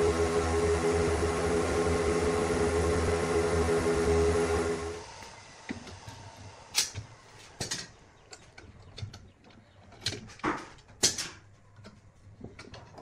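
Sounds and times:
metal clamps clicking and clacking: 6.7 - 13.0.

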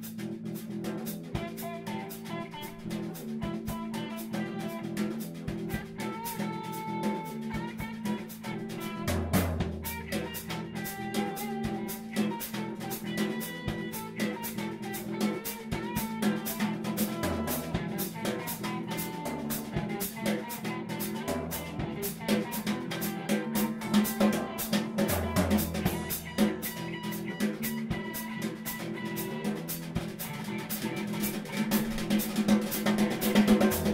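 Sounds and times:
instrumental band music: 0.0 - 33.9.

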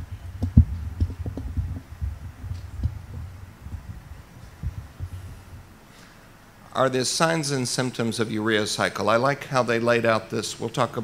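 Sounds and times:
low thuds and rumble: 0.0 - 5.9.

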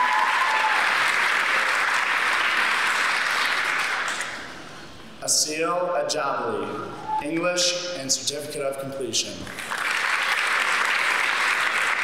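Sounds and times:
audience applauding: 0.0 - 4.4, 9.5 - 12.0.

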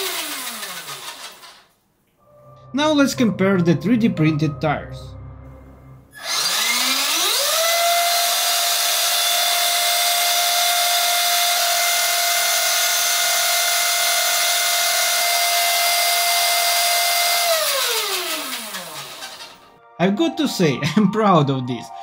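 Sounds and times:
toy truck electric motor whine: 0.0 - 1.7, 6.1 - 19.7.

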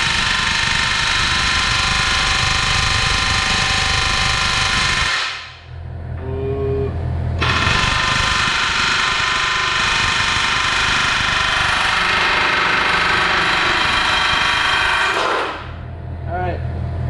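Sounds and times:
air hammer chiseling steel rivet: 7.4 - 15.7.

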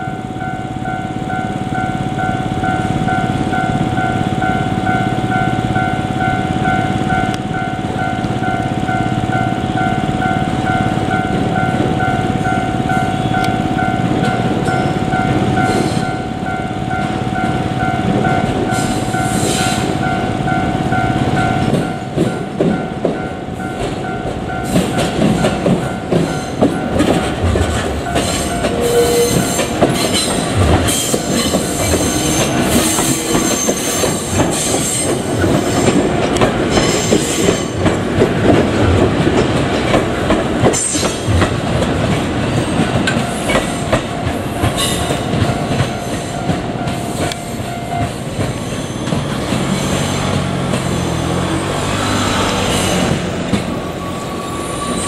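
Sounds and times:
level crossing warning bell: 0.0 - 35.7, 41.3 - 49.3
train wheels clicking over rail joints: 21.2 - 54.1.

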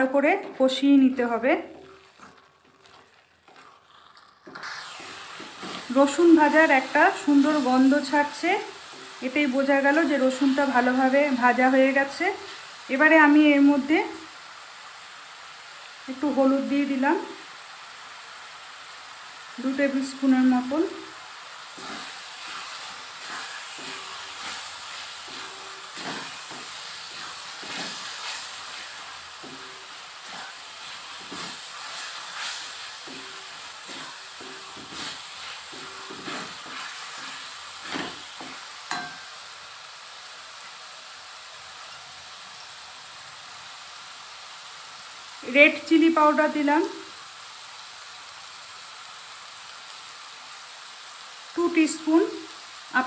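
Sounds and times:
masala sizzling in a pan: 0.0 - 53.0
wooden spatula scraping pan: 1.7 - 6.5, 21.8 - 39.2.

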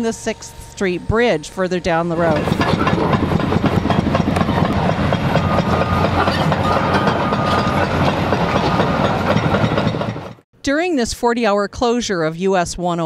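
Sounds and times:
diesel engines running: 0.0 - 10.4.

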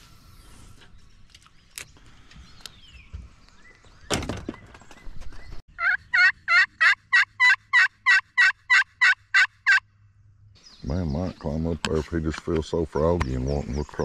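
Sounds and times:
turkey call hen yelps: 5.8 - 9.8.

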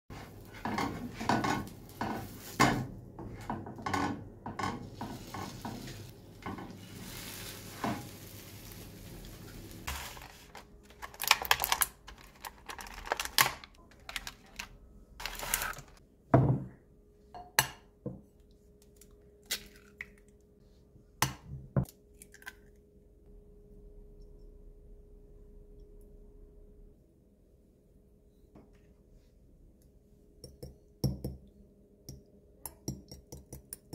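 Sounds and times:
food frying: 4.6 - 10.6
plastic egg carton crackling: 6.8 - 16.0.

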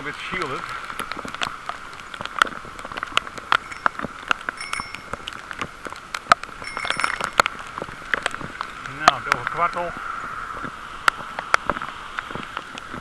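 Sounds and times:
raindrops ticking on camera: 0.0 - 13.0
steady rain hiss: 0.0 - 13.0
bicycle bell ringing: 3.6 - 5.3, 6.6 - 7.4.

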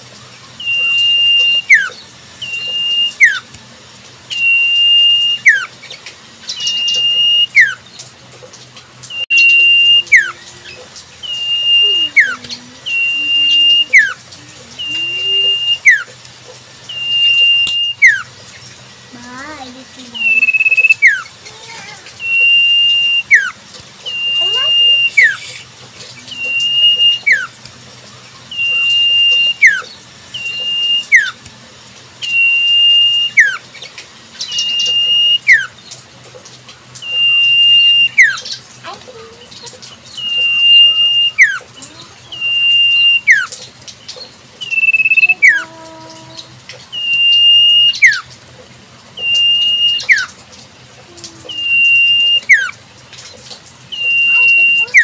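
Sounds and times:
bird whistling: 0.6 - 3.5, 4.3 - 5.7, 6.5 - 7.8, 9.1 - 16.2, 16.8 - 18.3, 20.1 - 21.4, 22.1 - 27.6, 28.5 - 31.4, 32.2 - 33.7, 34.4 - 35.8, 37.0 - 38.6, 40.0 - 41.7, 42.3 - 43.6, 44.6 - 45.7, 46.9 - 48.3, 49.2 - 50.4, 51.5 - 52.8, 53.9 - 55.0.

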